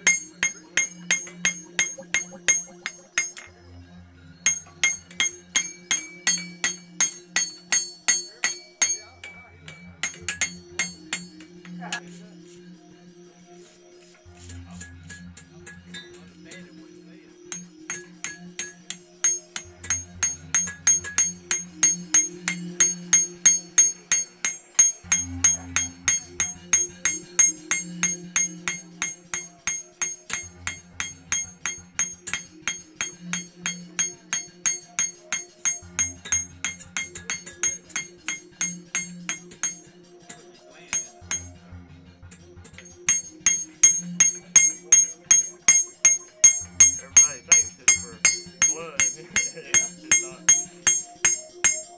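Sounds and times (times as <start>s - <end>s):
hammer striking blade on anvil: 0.0s - 3.6s, 4.4s - 12.2s, 17.5s - 41.6s, 42.7s - 51.9s
background music with bass line: 24.5s - 29.4s, 30.3s - 51.9s.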